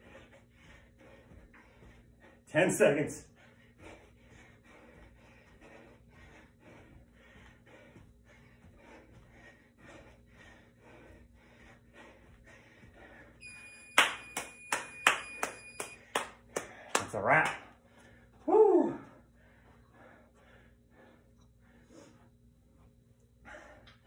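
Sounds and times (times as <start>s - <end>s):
timer alarm: 13.4s - 16.1s
man clapping hands: 13.9s - 17.7s.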